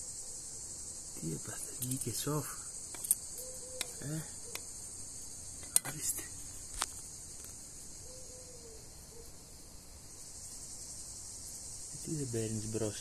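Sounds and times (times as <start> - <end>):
cicadas buzzing: 0.0 - 13.0
sharp clicks: 5.6 - 6.0.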